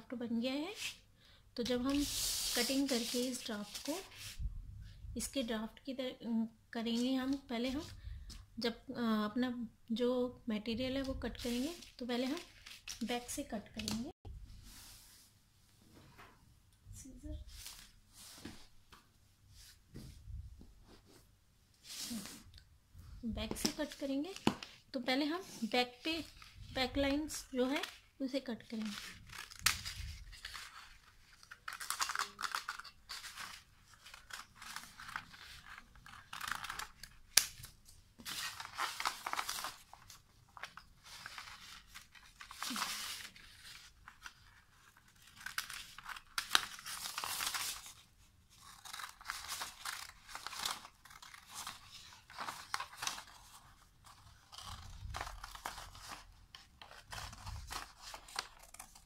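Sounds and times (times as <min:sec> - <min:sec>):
scissors snipping paper: 0:28.7 - 0:37.7, 0:48.6 - 0:59.0.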